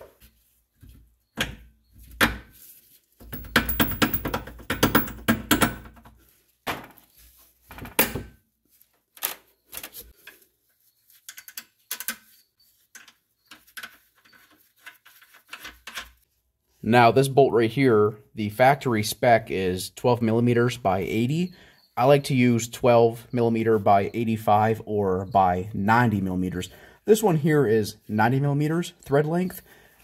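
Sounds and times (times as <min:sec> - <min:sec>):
metal knocks and rattling: 0:03.2 - 0:06.1.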